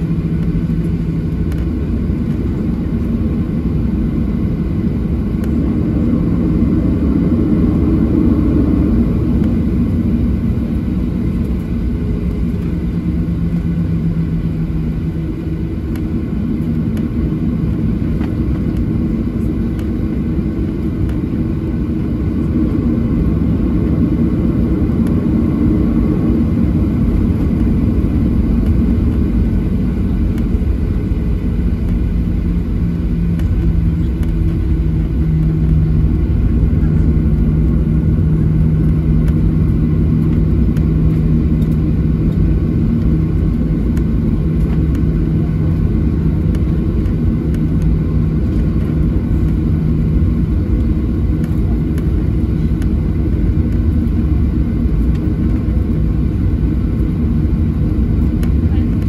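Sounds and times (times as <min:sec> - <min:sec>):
aircraft cabin rumble and hum: 0:00.0 - 0:59.0.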